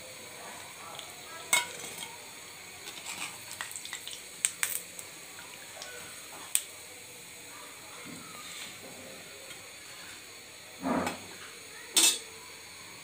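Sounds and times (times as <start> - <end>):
frying oil hiss: 0.0 - 13.0
metal skimmer clinking on pan: 1.5 - 2.1, 12.0 - 12.3
oil dripping: 2.2 - 8.0.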